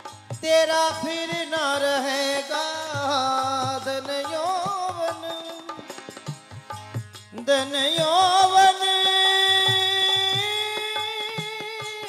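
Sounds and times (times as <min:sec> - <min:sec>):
harmonium tone: 0:00.0 - 0:12.0
man singing: 0:00.3 - 0:06.2, 0:07.3 - 0:12.0.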